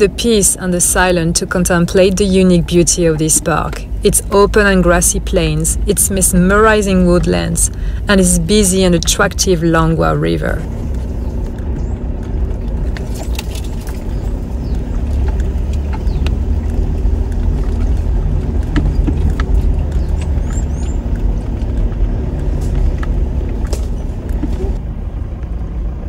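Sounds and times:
engine and tyres rumbling: 0.0 - 26.0
truck rattling and knocking: 10.4 - 25.6.

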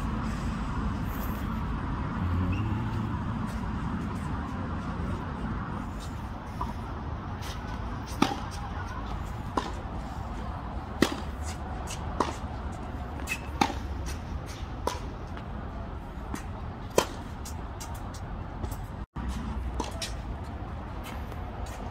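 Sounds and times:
racket hitting tennis ball: 7.4 - 20.4
tennis ball bouncing: 7.5 - 10.0, 10.8 - 15.6, 16.2 - 18.9, 19.7 - 20.2.

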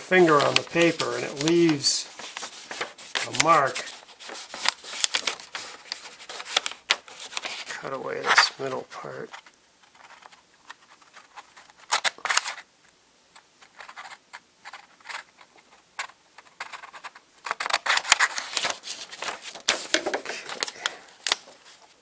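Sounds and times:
paper crackling and rustling: 0.0 - 12.7, 13.6 - 22.0
scissors snipping paper: 0.2 - 7.6.

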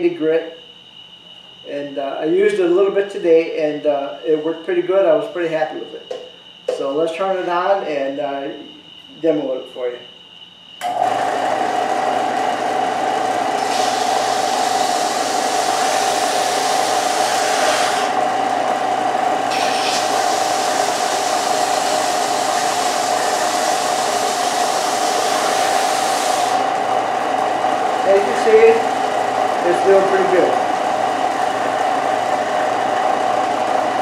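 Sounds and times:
sander motor hum: 10.8 - 34.0
wood rasping on sanding belt: 13.6 - 18.2, 19.5 - 26.7.

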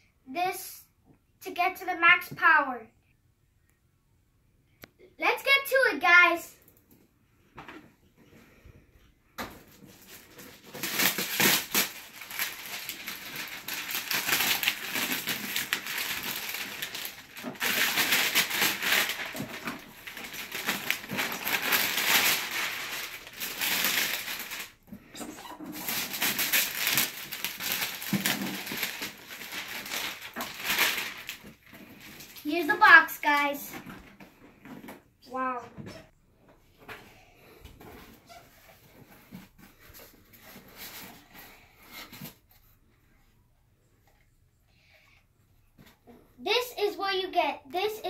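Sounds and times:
plastic shrink-wrap tearing and crinkling: 9.6 - 32.8.

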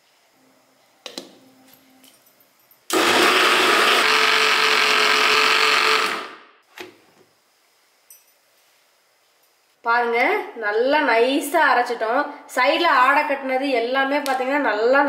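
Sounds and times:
mixer grinder running: 2.9 - 6.4.

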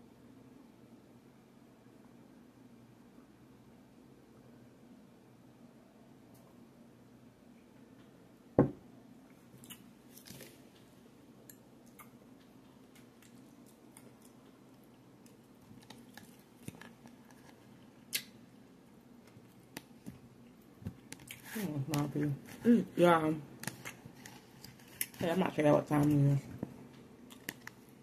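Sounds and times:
glass thumping on table: 8.6 - 8.8.

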